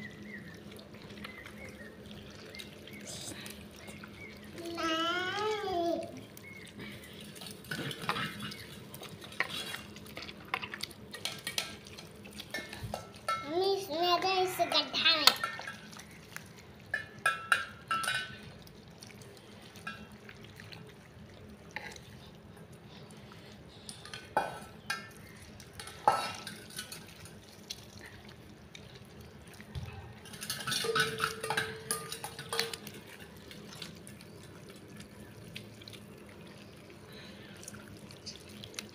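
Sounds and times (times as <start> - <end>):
steel plate clinking: 30.2 - 32.9.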